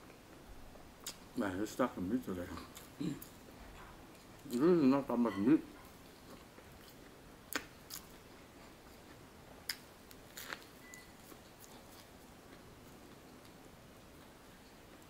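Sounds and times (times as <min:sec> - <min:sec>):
quiet chewing: 0:05.8 - 0:15.0.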